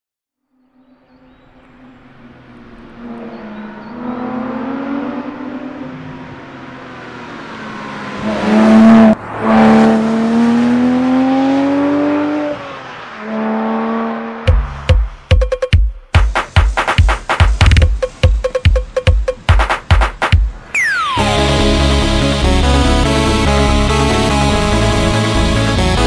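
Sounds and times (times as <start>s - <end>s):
sports car engine accelerating: 0.7s - 14.9s, 21.0s - 26.0s
electronic music with drum hits: 14.5s - 26.0s.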